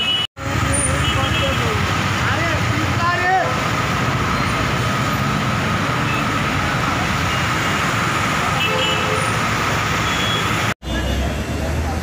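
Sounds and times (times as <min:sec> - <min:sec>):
vehicles driving through water: 0:00.4 - 0:12.0.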